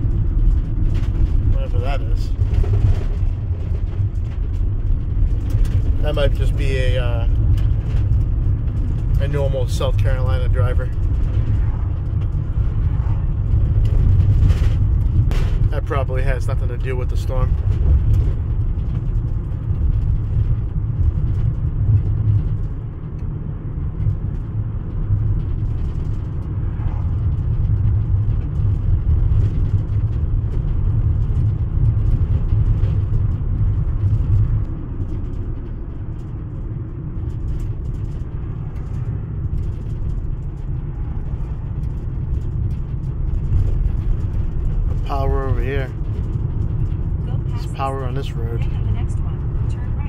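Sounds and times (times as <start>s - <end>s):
car driving noise inside cabin: 0.0s - 50.0s.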